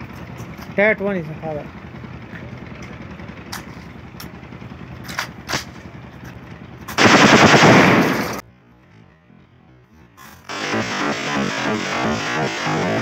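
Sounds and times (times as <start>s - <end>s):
rapid shotgun blasts: 7.0s - 8.4s.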